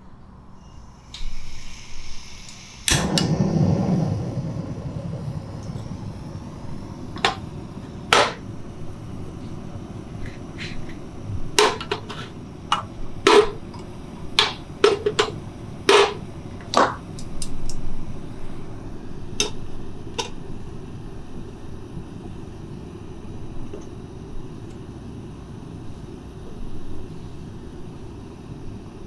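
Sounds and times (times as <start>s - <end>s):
gas stove burner roaring: 0.6s - 29.0s.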